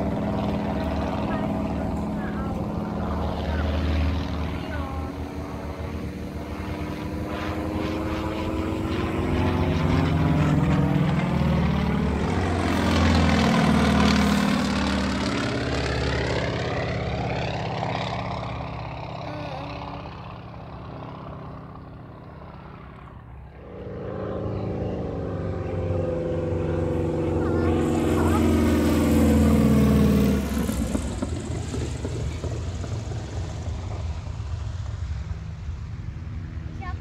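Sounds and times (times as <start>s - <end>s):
propeller plane flying past: 0.0s - 37.0s.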